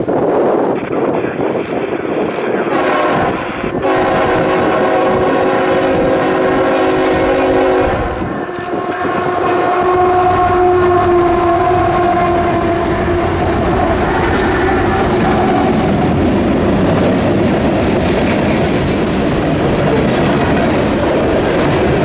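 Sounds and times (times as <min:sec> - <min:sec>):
train wheels rumbling on rails: 0:00.0 - 0:22.0
locomotive air horn blasts: 0:02.7 - 0:14.2.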